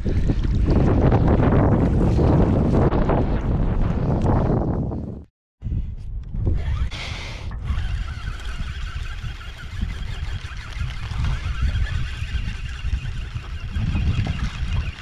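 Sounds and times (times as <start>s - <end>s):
outboard motor running: 7.5s - 15.0s.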